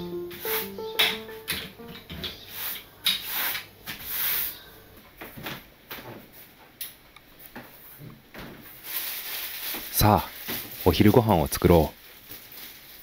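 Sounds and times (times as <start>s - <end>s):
broom brushing wooden floor: 0.3s - 0.8s, 2.4s - 4.6s.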